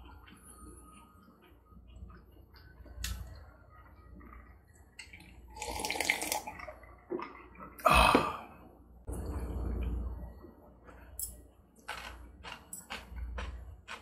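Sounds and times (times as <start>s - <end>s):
chewing food: 11.8s - 14.0s.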